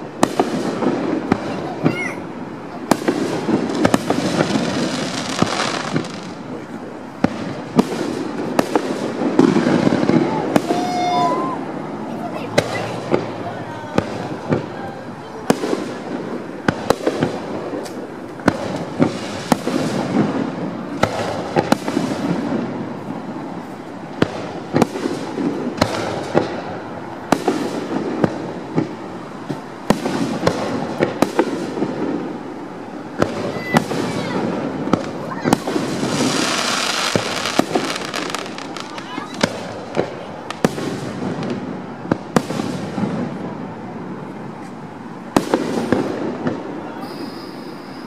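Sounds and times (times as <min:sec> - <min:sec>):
fireworks bursting with sharp bangs: 0:00.0 - 0:48.0
fireworks hissing: 0:00.0 - 0:48.0
murmur of crowd voices: 0:00.0 - 0:48.0.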